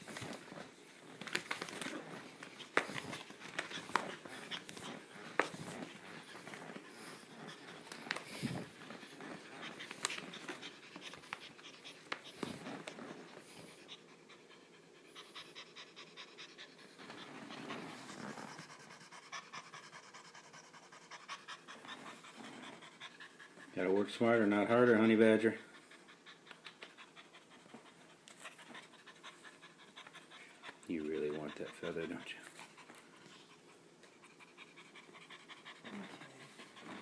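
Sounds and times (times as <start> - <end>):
scratches and taps on a rug: 0.0 - 6.9
cat panting: 0.0 - 37.0.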